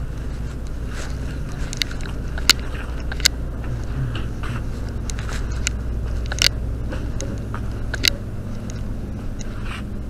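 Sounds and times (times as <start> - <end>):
fabric rustling against microphone: 0.0 - 3.1, 4.3 - 6.3
clicks and crackles: 0.2 - 9.6.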